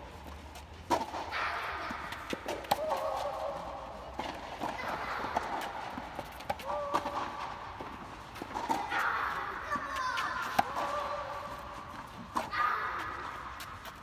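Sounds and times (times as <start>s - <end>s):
tennis ball struck by rackets: 0.8s - 3.4s, 9.8s - 11.4s.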